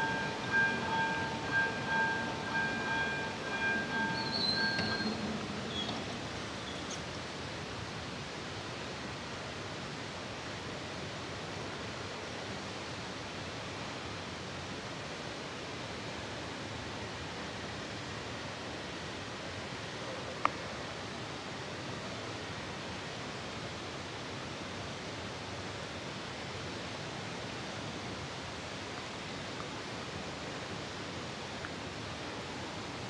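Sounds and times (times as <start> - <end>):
railroad crossing bell ringing: 0.0 - 6.9
steady outdoor hiss: 0.0 - 33.0.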